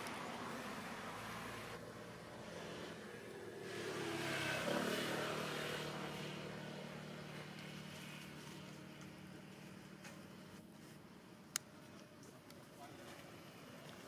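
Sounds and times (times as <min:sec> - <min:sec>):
vehicle engine passing by: 0:00.0 - 0:09.6.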